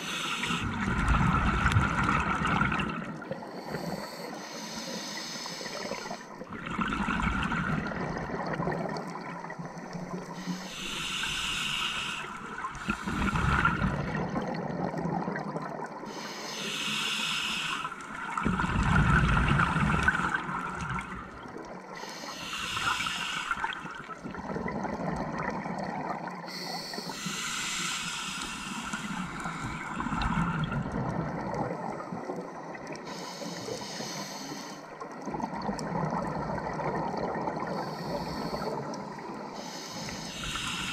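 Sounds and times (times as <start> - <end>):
regulator hissing on inhale: 0.0 - 0.8, 3.5 - 6.3, 10.2 - 13.4, 16.1 - 18.1, 22.0 - 24.0, 26.5 - 30.6, 33.0 - 35.0, 37.6 - 40.9
gurgling exhaled bubbles: 0.5 - 3.8, 5.8 - 10.4, 12.4 - 16.1, 18.1 - 27.6, 28.7 - 33.0, 35.0 - 39.4.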